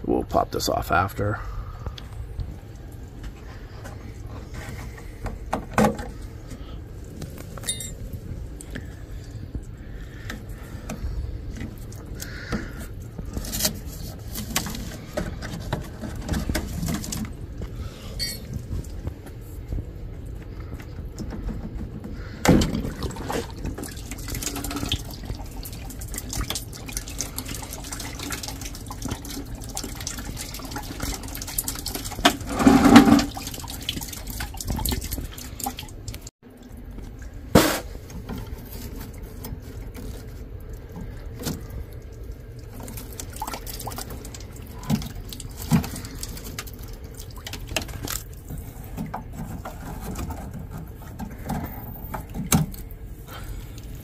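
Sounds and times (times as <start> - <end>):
water running and dripping: 22.2 - 54.0.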